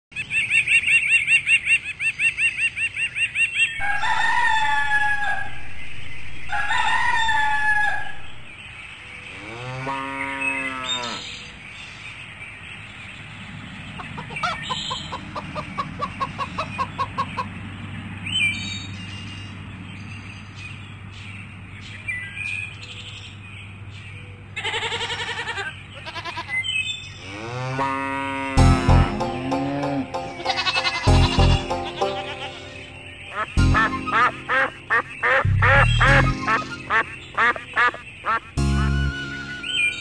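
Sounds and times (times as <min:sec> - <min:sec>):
rooster crowing: 0:03.8 - 0:05.8, 0:06.4 - 0:08.4
cow mooing: 0:09.4 - 0:11.4, 0:27.2 - 0:31.6
hen clucking: 0:14.0 - 0:17.6, 0:28.7 - 0:39.7
bird twittering: 0:31.8 - 0:40.0.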